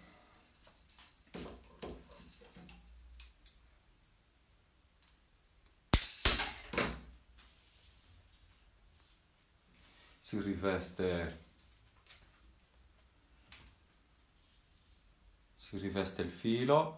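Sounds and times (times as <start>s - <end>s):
wire rustling and clicking: 0.4s - 3.7s, 11.0s - 14.0s
wire cutters snapping: 5.9s - 6.9s.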